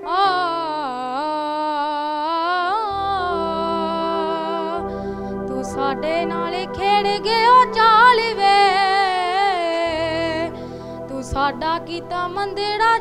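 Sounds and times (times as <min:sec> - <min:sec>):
held instrumental chord: 0:02.8 - 0:13.0
low bass note: 0:02.9 - 0:08.8
boy singing wordless phrase: 0:11.1 - 0:13.0.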